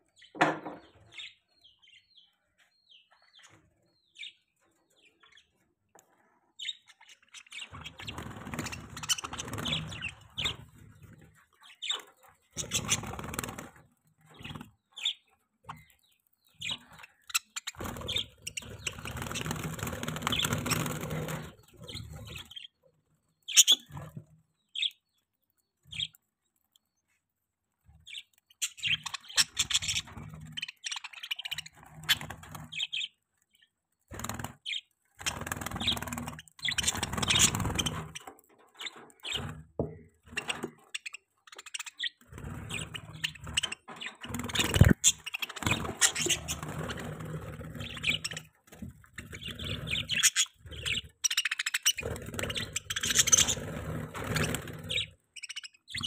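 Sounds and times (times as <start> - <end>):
budgerigars chirping: 6.6 - 13.6, 14.3 - 22.8, 23.5 - 24.0, 28.1 - 39.5, 40.3 - 48.6, 49.2 - 56.0.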